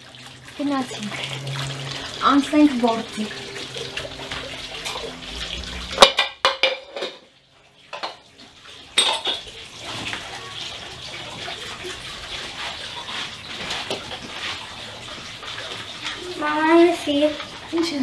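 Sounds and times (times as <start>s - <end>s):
tap water running: 0.0s - 18.0s
dishes and utensils clinking: 5.9s - 7.3s, 7.9s - 8.3s, 8.9s - 10.2s.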